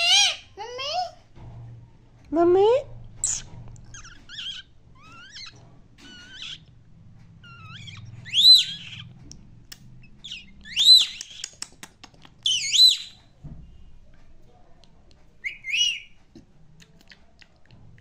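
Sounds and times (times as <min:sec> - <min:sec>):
parakeet chirps and chatter: 0:00.0 - 0:00.6, 0:03.2 - 0:06.8, 0:07.4 - 0:13.3, 0:15.4 - 0:16.2
parakeet whistles: 0:07.4 - 0:09.1, 0:10.2 - 0:11.4, 0:12.4 - 0:13.2, 0:15.4 - 0:16.1
quick clicks: 0:11.2 - 0:12.4.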